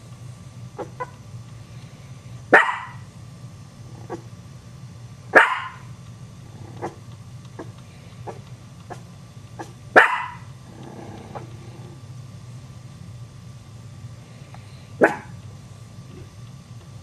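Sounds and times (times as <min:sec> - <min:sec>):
steady low hum: 0:00.0 - 0:17.0
dog barking: 0:00.8 - 0:01.1, 0:02.5 - 0:03.0, 0:04.0 - 0:04.3, 0:05.3 - 0:05.9, 0:09.6 - 0:10.5, 0:15.0 - 0:15.4.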